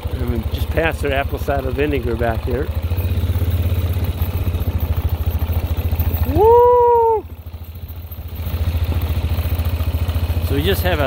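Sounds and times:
four-wheeler engine putter: 0.0s - 11.0s
long rising call: 5.0s - 7.4s.

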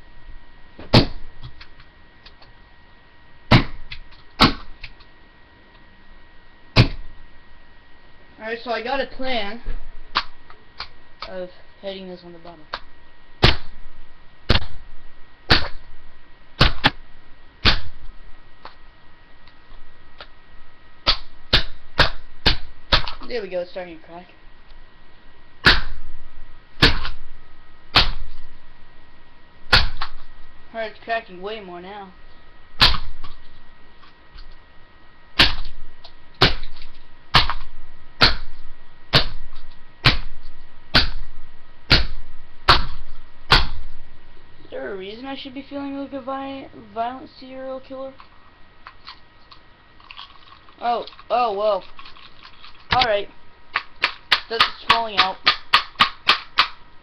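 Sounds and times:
hammer striking plastic: 41.9s - 43.8s, 53.7s - 56.8s
plastic casing cracking: 48.2s - 53.1s.

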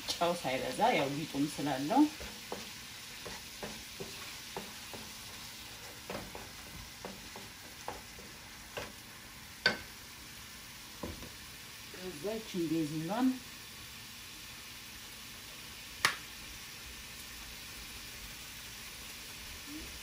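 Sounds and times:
tomato sauce sizzling in pan: 0.0s - 20.0s
wooden spatula scraping pan: 1.3s - 9.0s.

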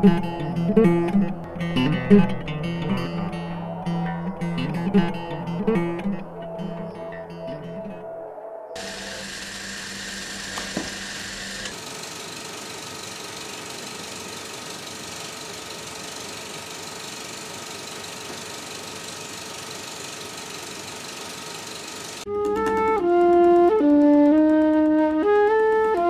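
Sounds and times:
small mechanism running: 8.8s - 26.0s.

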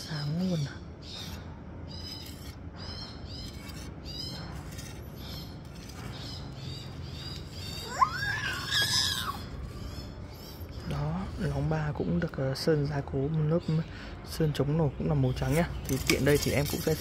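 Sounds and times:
small birds chirping: 0.0s - 17.0s
rising and falling bird call: 6.2s - 10.7s.

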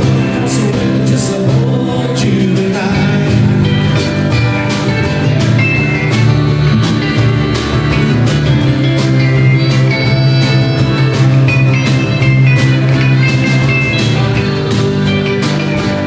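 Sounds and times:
drum kit beat: 0.0s - 16.0s
electric and acoustic guitars: 0.0s - 16.0s
harmonica: 3.6s - 16.0s.

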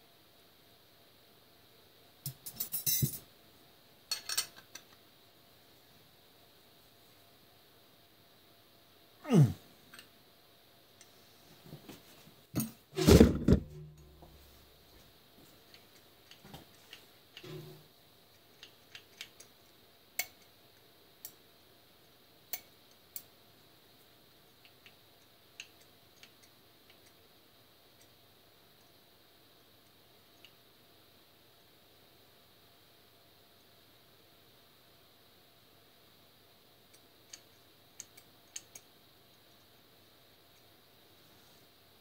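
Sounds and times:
metal tools clinking: 2.3s - 3.2s
metal tools clattering: 2.4s - 3.2s.

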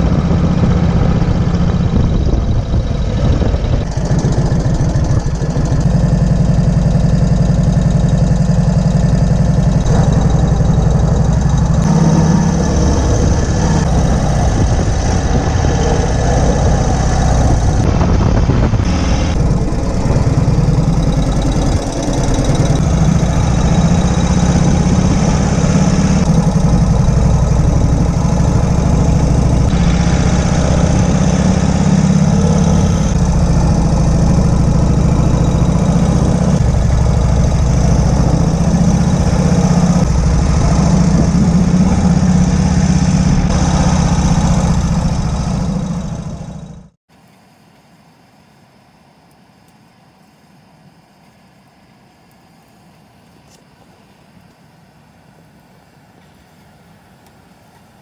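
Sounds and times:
wind rushing over microphone: 0.0s - 7.5s, 9.8s - 46.3s
motorcycle engine rumbling: 0.0s - 47.0s.

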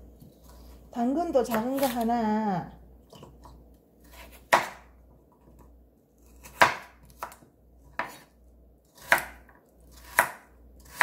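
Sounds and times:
knife chopping carrot on board: 4.0s - 4.9s, 6.4s - 8.3s, 9.0s - 11.0s.

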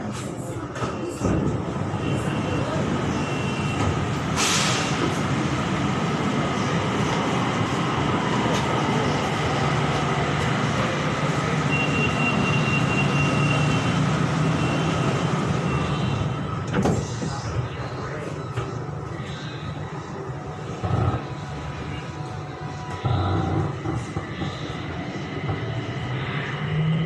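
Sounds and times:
train wheels rumbling on rail: 0.0s - 17.5s.

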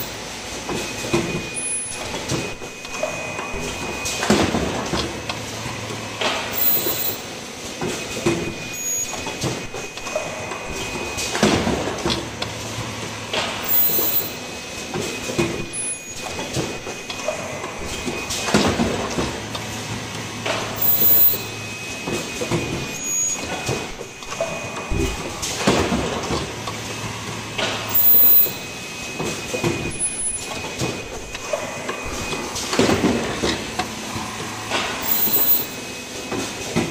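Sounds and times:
pneumatic arm clacking and knocking: 0.0s - 36.9s
steady machine hum: 15.6s - 36.9s.

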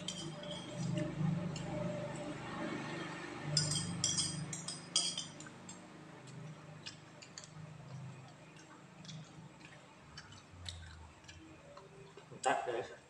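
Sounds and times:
spoon clinking on glass plate: 0.0s - 1.0s, 3.5s - 5.5s.

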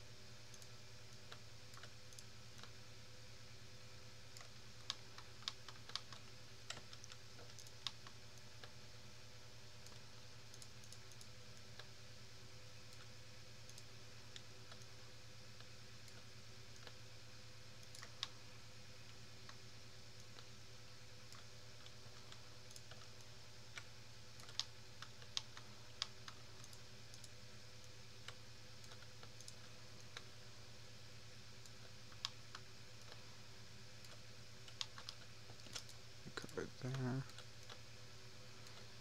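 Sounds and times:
steady low hum: 0.0s - 39.0s
keyboard and mouse clicks: 0.5s - 2.8s, 4.3s - 8.8s, 9.8s - 11.9s, 13.7s - 14.9s, 21.3s - 30.3s, 31.6s - 33.3s, 34.0s - 37.8s.

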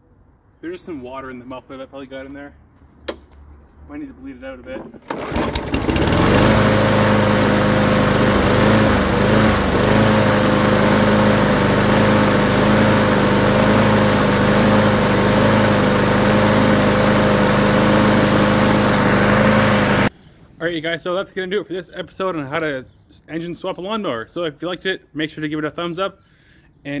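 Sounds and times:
mower engine pull-started: 4.8s - 20.1s.

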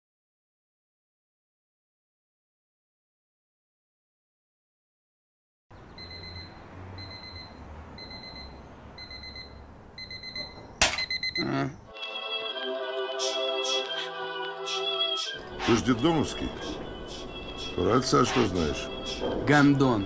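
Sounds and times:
electronic alarm beeping: 5.8s - 11.8s, 15.4s - 20.0s
music: 11.9s - 20.0s.

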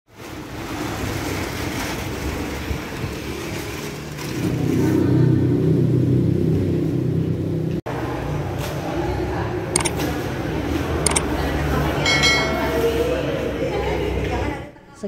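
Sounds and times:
street noise: 0.1s - 15.0s.

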